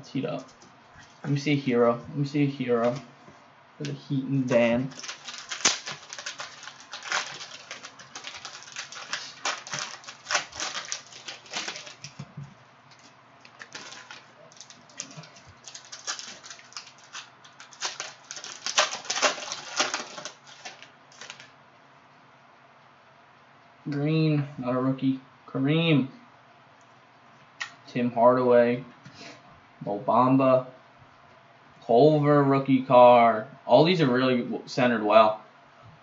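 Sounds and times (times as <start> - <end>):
plastic wrapper crinkling: 4.6 - 21.6.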